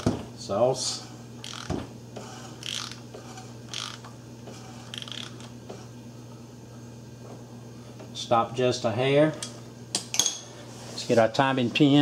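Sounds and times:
steady low hum: 0.0 - 12.0
ratchet wrench clicking: 1.4 - 1.7, 2.6 - 3.0, 3.7 - 4.1, 4.9 - 5.4.

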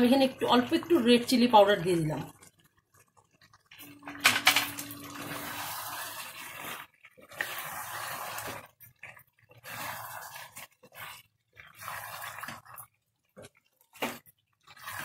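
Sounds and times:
spatula stirring food in gravy: 2.3 - 3.9, 5.1 - 15.0
spatula scraping non-stick pan: 5.1 - 12.8.

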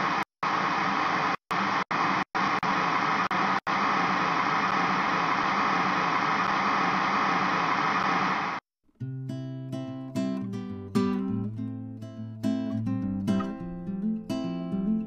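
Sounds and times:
television static hiss: 0.0 - 8.6.

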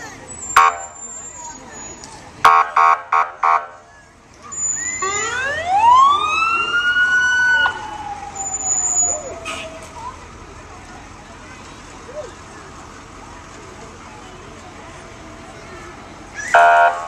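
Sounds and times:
fire truck horn blasts: 2.4 - 3.8, 16.6 - 17.0
siren wailing: 4.7 - 9.6.

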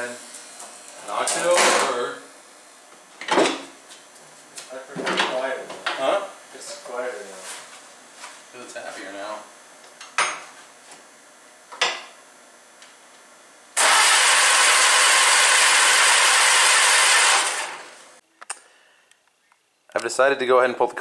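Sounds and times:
starter cranking engine: 13.8 - 18.0.

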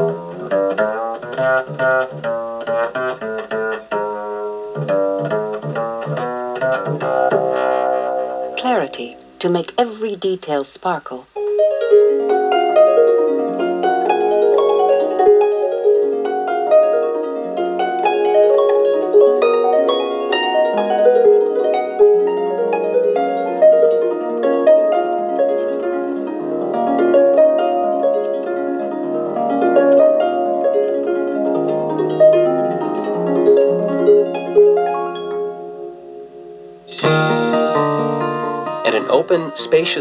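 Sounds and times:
plucked-string music through small speaker: 0.0 - 9.8, 11.3 - 40.0.

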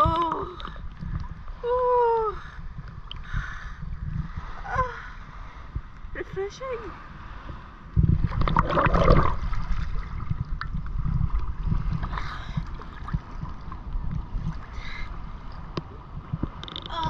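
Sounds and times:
sea water sloshing and lapping: 0.0 - 17.0
wind buffeting microphone: 0.0 - 17.0
water splash: 8.2 - 10.8.

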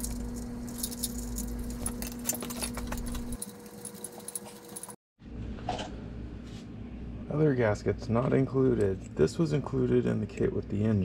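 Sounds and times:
small parts clinking and rattling: 0.0 - 5.0.

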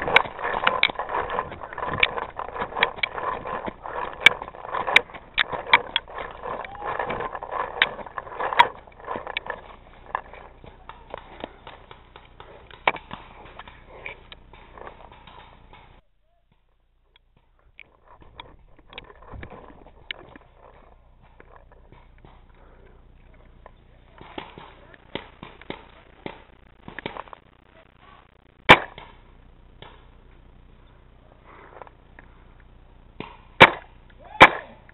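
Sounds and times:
sharp pops: 23.6 - 29.2, 33.1 - 34.9.

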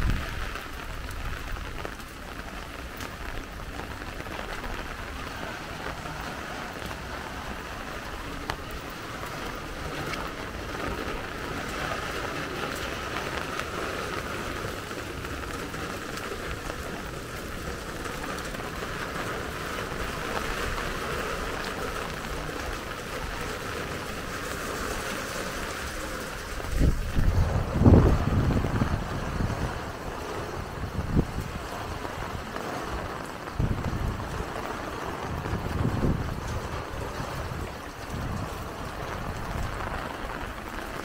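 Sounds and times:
steady rain falling: 0.0 - 41.0.

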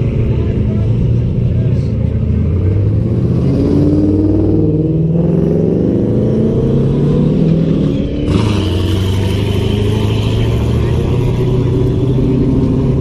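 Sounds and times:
car engine accelerating: 0.0 - 13.0
rough hissy buggy engine: 8.1 - 13.0.

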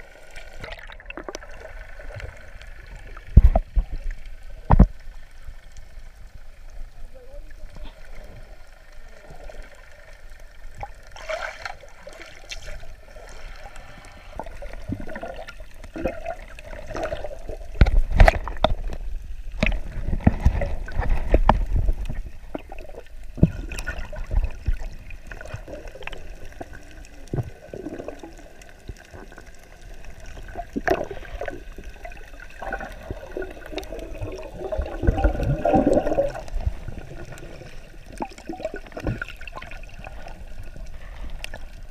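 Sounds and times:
bubbles gurgling: 0.0 - 4.1, 14.3 - 41.9
water sloshing underwater: 0.0 - 41.9.

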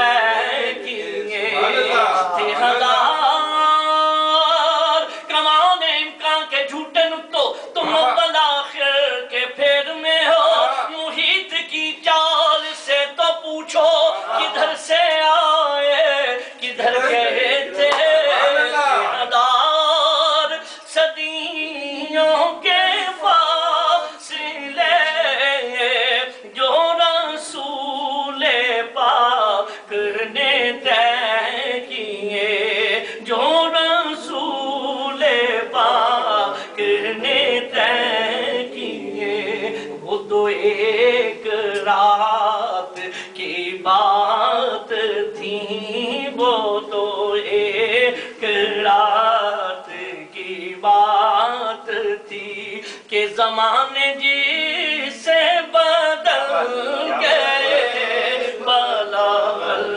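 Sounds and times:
man singing unaccompanied: 0.0 - 59.9.

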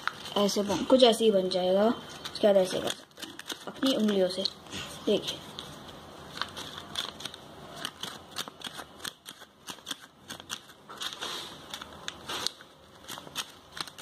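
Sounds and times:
paper crinkling and clicking: 2.1 - 4.5, 5.5 - 14.0.

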